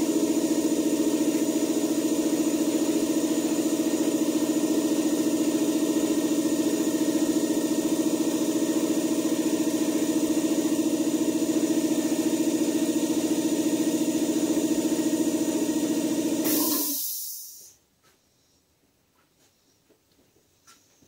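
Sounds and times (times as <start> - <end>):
air compressor running: 0.0 - 17.8
air hiss: 16.4 - 17.8.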